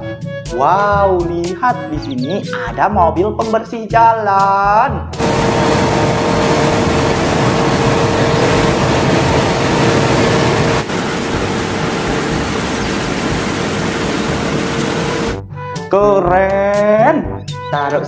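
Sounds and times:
loud rushing noise with hum: 5.2s - 15.4s.

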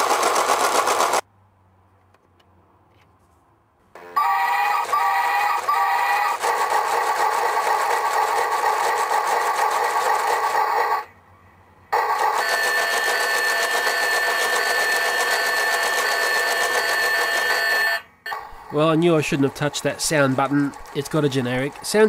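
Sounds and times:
toy train sound effects: 4.0s - 11.1s, 12.0s - 22.0s.

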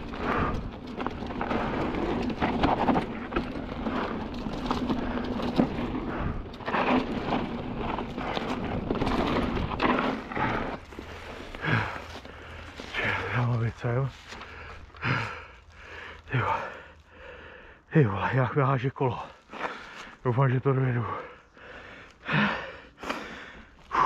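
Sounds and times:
bike rattling and knocking: 0.0s - 16.5s
bike tyres on loose dirt: 0.0s - 24.0s.

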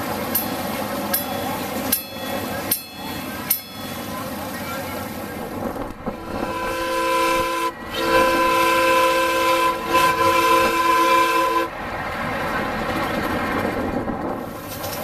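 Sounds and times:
steam locomotive chime whistle: 6.2s - 11.7s.

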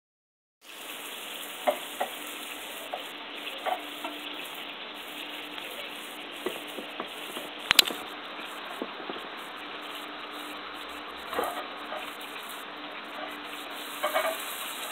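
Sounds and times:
fish frying in oil: 0.6s - 14.9s
oil popping: 7.7s - 8.0s.

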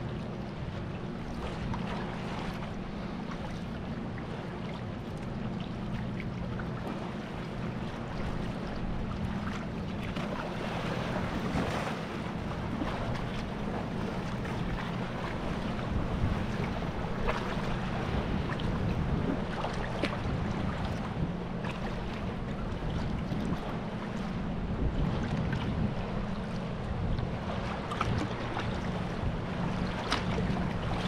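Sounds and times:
water splashing around kayak: 0.0s - 31.0s
wind on microphone: 8.1s - 31.0s.

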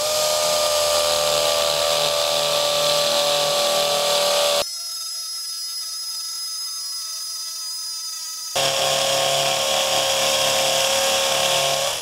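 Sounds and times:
hammer drill hammering into concrete: 0.0s - 4.7s, 8.5s - 12.0s
drill motor high whine: 0.0s - 12.0s.

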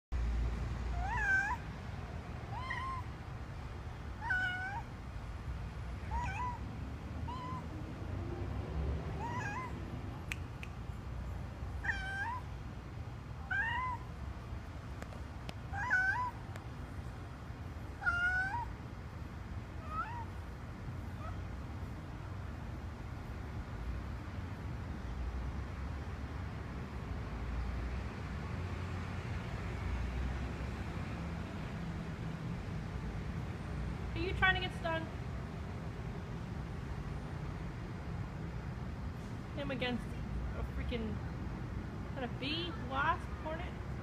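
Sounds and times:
cat meowing: 0.9s - 1.6s, 2.5s - 3.1s, 4.2s - 4.9s, 6.0s - 6.7s, 7.3s - 7.7s, 9.2s - 9.8s, 11.8s - 12.5s, 13.4s - 14.1s, 15.7s - 16.5s, 18.0s - 18.7s, 19.8s - 20.4s.

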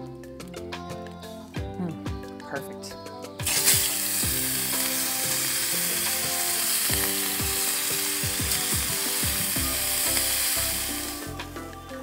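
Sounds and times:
bacon sizzling in a pan: 3.4s - 11.5s.

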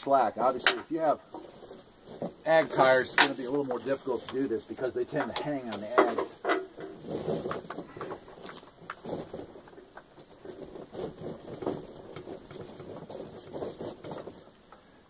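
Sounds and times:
tire chain links clinking: 0.1s - 15.0s.

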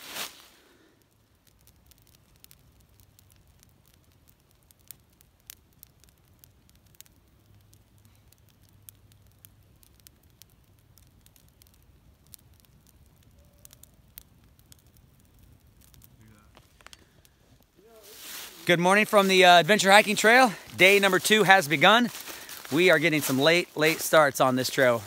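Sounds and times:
campfire crackling: 0.0s - 25.0s
sharp pops of fire: 0.0s - 25.0s.

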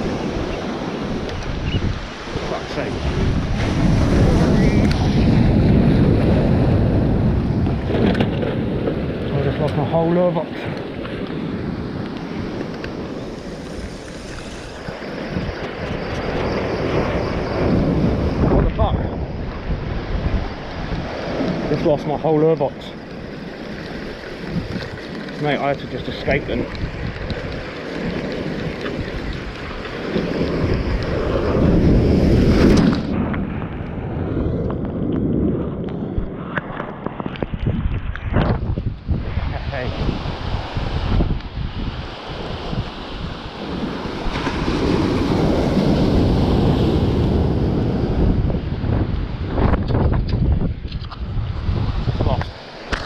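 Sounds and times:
wave washing over boulders: 0.0s - 53.0s
wind rumbling on microphone: 0.0s - 53.0s
surf breaking on rocks: 38.4s - 53.0s.

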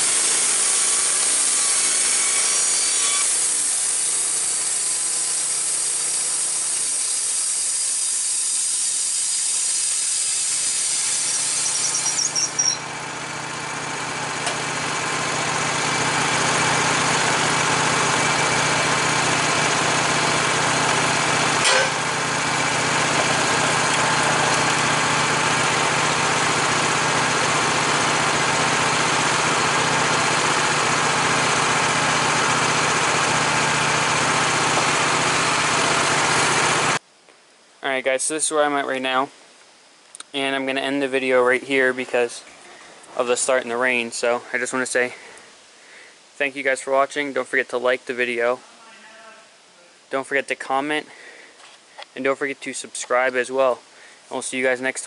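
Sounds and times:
gasoline engine running: 0.0s - 7.5s, 9.9s - 37.0s
saw blade cutting wood: 0.0s - 8.4s, 9.9s - 12.8s, 21.3s - 29.8s
saw blade squeal: 0.1s - 12.8s
sharp knock: 21.6s - 22.0s.

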